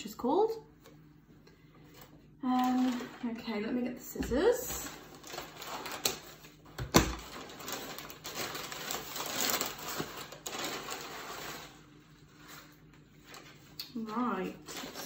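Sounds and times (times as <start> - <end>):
paper wrapping rustling: 4.4 - 15.0.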